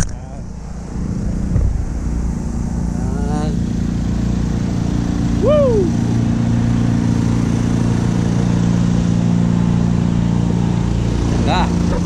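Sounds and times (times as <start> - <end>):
engines droning: 0.0 - 12.0
person shouting woo: 5.4 - 6.0.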